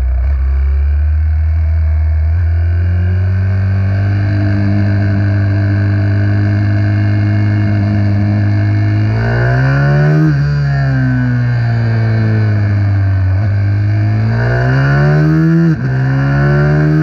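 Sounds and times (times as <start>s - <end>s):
minibike engine revving: 2.6s - 17.0s.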